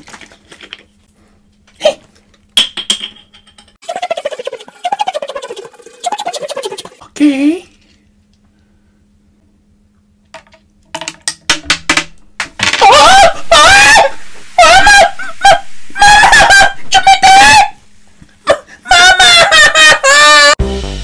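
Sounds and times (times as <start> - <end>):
person shrieking: 12.8 - 17.8.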